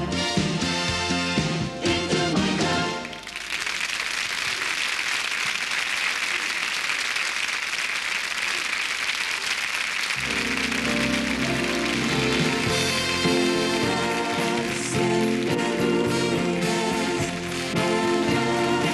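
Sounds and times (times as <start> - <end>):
music: 0.0 - 3.3, 10.2 - 18.9
studio audience applauding: 3.0 - 18.9.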